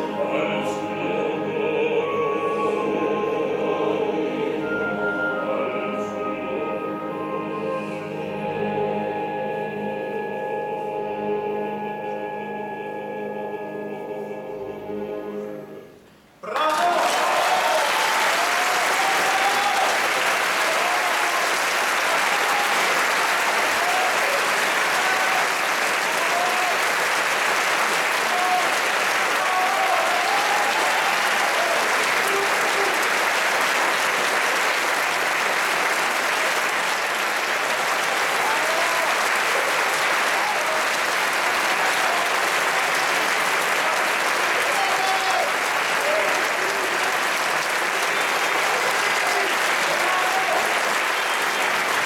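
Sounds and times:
crowd shouting: 0:16.4 - 0:20.0, 0:28.2 - 0:33.0, 0:44.6 - 0:46.3
audience applauding: 0:16.4 - 0:52.0.

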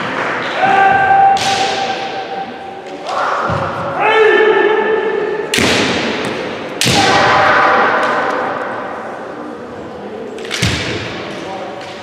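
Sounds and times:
loud shout ringing in a hall: 0:00.4 - 0:05.5, 0:06.8 - 0:09.2
bamboo swords striking: 0:01.3 - 0:02.2.

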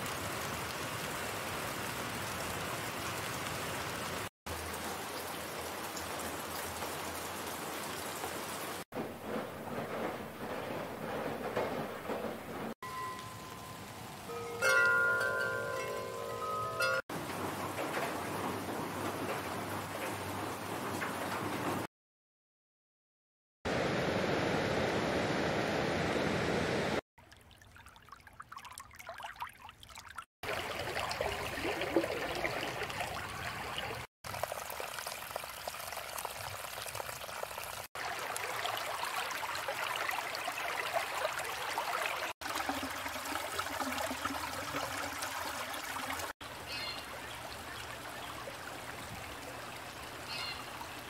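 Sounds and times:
running water: 0:00.0 - 0:08.9, 0:09.8 - 0:21.9, 0:27.2 - 0:51.0
faint bird chirps: 0:46.7 - 0:47.1, 0:50.3 - 0:50.7.

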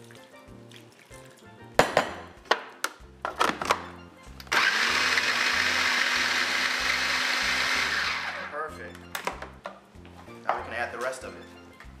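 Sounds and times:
food processor motor chopping: 0:04.5 - 0:08.5.

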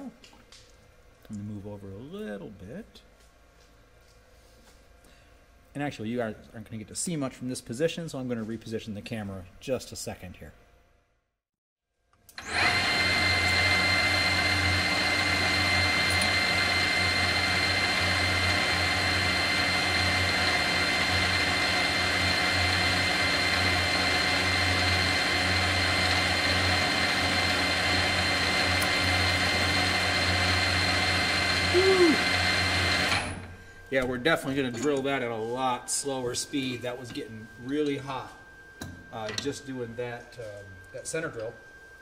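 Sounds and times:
drill cutting into steel: 0:12.4 - 0:33.5
metal lathe whining: 0:12.4 - 0:33.6.

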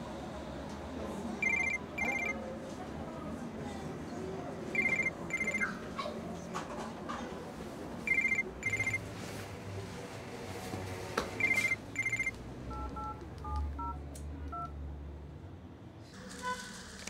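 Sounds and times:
keypad tones: 0:01.4 - 0:02.4, 0:04.8 - 0:05.7, 0:08.1 - 0:09.0, 0:11.4 - 0:14.7
telephone ringing: 0:01.4 - 0:02.4, 0:04.8 - 0:05.8, 0:08.1 - 0:09.1, 0:11.4 - 0:13.9.

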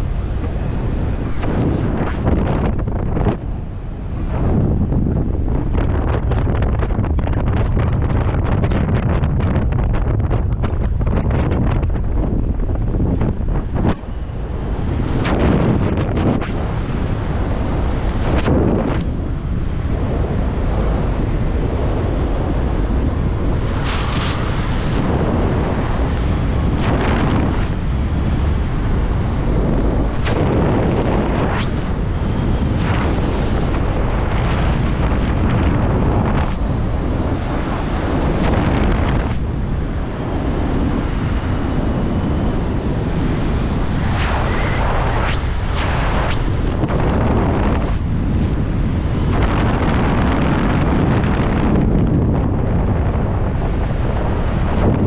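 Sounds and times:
wind rushing across microphone: 0:00.0 - 0:55.0.

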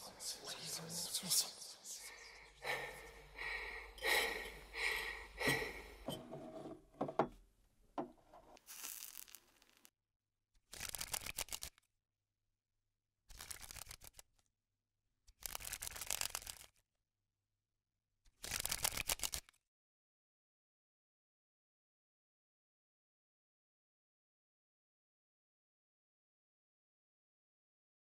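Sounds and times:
paper cards flipping: 0:08.6 - 0:09.9, 0:10.7 - 0:11.9, 0:13.3 - 0:14.3, 0:15.4 - 0:16.8, 0:18.3 - 0:19.6.

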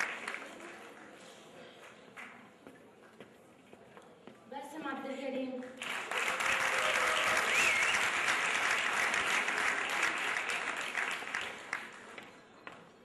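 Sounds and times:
audience applauding: 0:00.0 - 0:01.1, 0:05.8 - 0:12.2
whistle: 0:07.5 - 0:08.1.

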